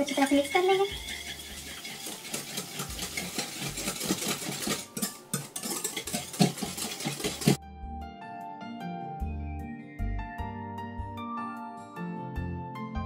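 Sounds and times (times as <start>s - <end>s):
whisk clicking in glass bowl: 0.0s - 7.6s.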